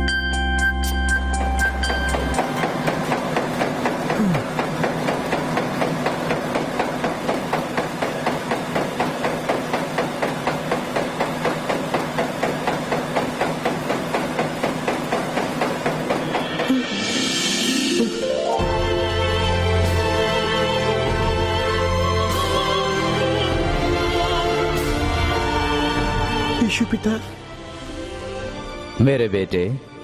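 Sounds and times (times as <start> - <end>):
rapid even knocking: 1.4 - 16.8.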